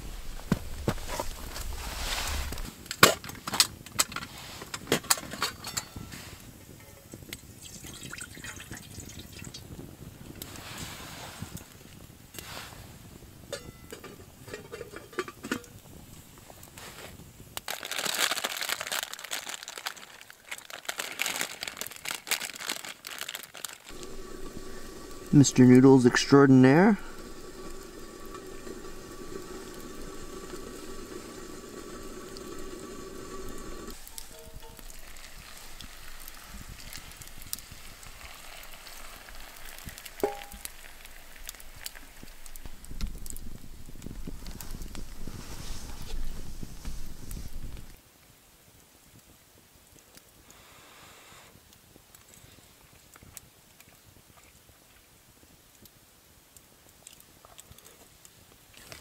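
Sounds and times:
campfire crackling: 0.0 - 59.0
water boiling in a pot: 0.0 - 59.0
metal pot knocking and clinking: 34.1 - 35.0, 40.2 - 40.7.

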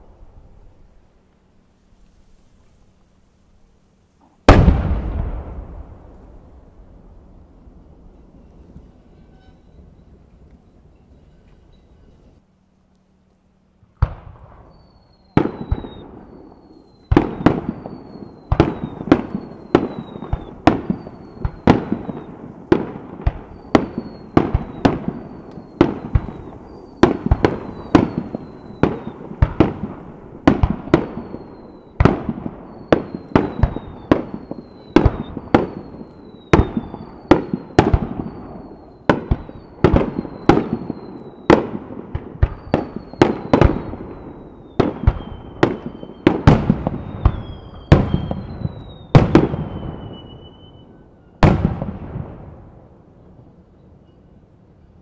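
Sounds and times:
fireworks bangs: 4.2 - 12.4, 14.0 - 52.9
high falling whistle: 8.0 - 12.4, 14.6 - 22.4, 23.4 - 29.3, 32.6 - 41.5, 46.9 - 51.5.

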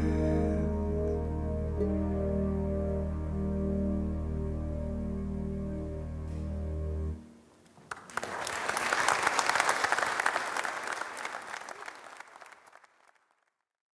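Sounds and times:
audience applauding: 7.8 - 13.6.

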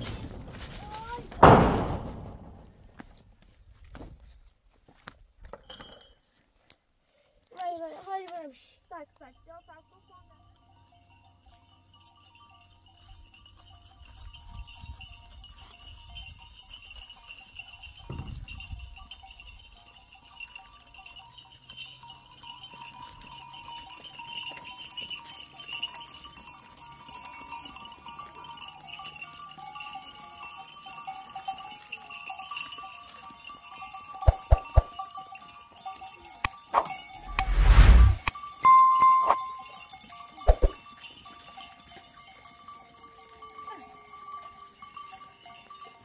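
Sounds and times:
loud thump: 1.4 - 2.6
livestock bells clinking: 5.5 - 6.4, 8.1 - 37.3, 38.3 - 46.0.

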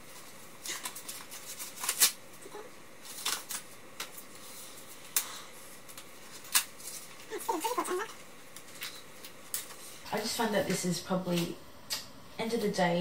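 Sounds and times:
packaging rustling: 0.0 - 10.0.

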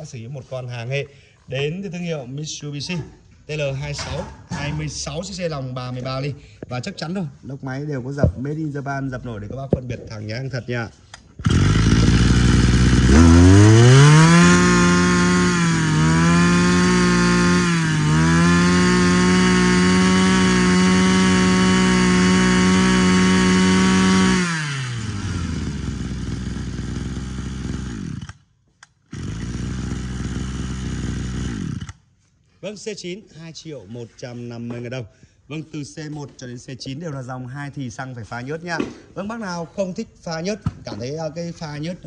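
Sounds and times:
brush cutter engine revving: 11.1 - 32.2.

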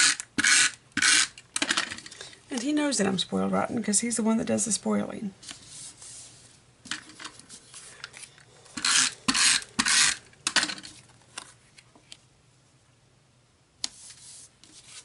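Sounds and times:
tape runner rasping: 8.8 - 10.8.

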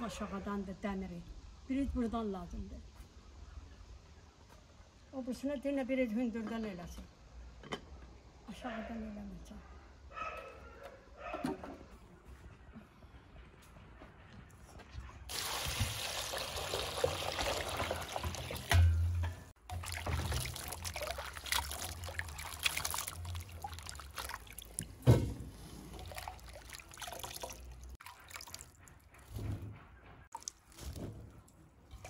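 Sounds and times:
water pouring into basin: 15.3 - 18.8, 19.7 - 25.0, 25.8 - 28.8.

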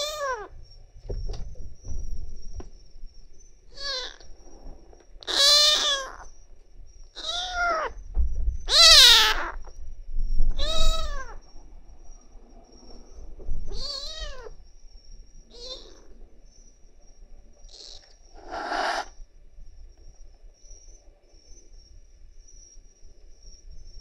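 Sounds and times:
kitten meowing: 0.0 - 0.5, 3.8 - 4.2, 5.3 - 6.2, 7.2 - 7.9, 8.7 - 9.6, 10.6 - 11.4, 13.7 - 14.5, 15.5 - 16.0, 17.8 - 19.1.

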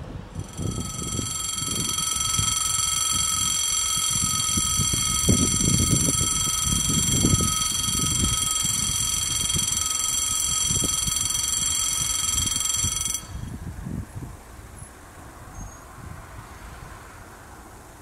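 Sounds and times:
electric warning bell ringing: 0.4 - 13.8.

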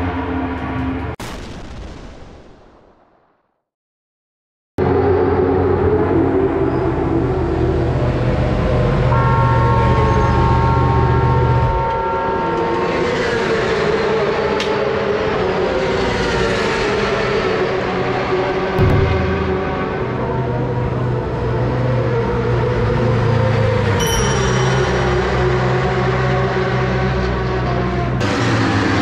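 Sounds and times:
higher steady tone: 18.8 - 21.2, 24.0 - 26.1.

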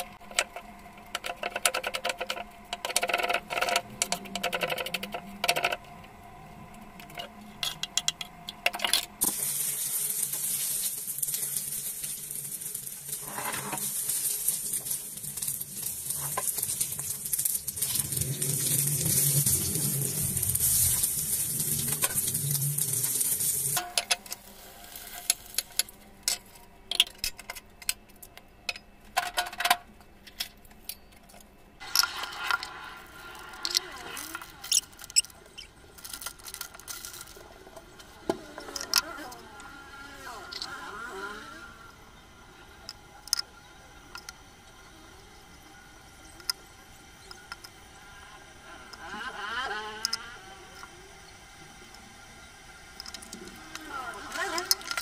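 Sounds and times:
food sizzling in a pan: 9.2 - 23.8, 24.4 - 25.6.

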